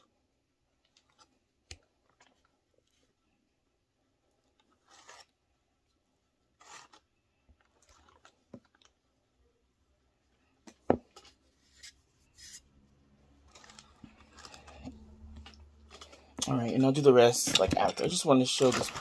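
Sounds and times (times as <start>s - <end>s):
spatula scraping a metal bowl: 4.8s - 5.4s.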